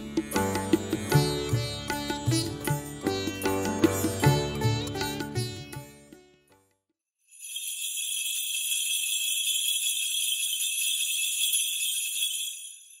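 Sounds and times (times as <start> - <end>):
small bells shimmering: 7.2 - 13.0.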